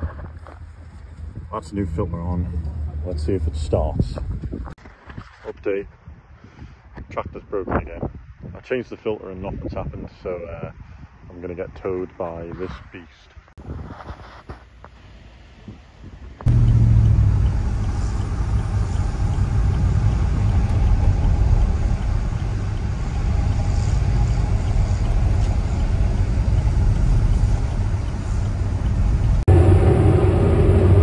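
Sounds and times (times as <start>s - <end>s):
car engine drone and road rumble: 0.0s - 4.8s, 14.4s - 31.0s
diesel tractor engine: 16.4s - 31.0s.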